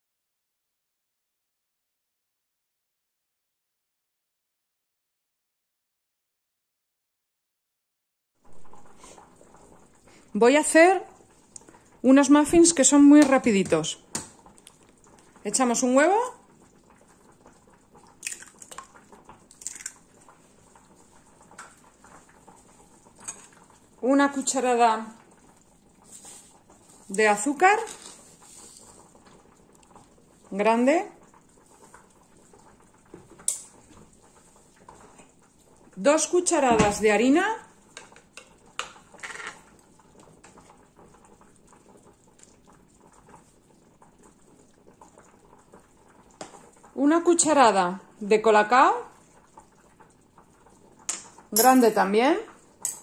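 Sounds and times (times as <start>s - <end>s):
eggshell crackling: 18.0s - 20.4s
spoon scraping flour: 27.8s - 29.0s.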